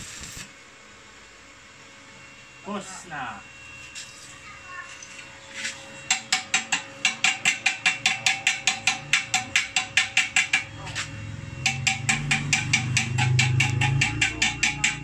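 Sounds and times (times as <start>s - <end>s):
chipping hammer tapping metal: 6.1s - 10.7s, 11.6s - 15.0s.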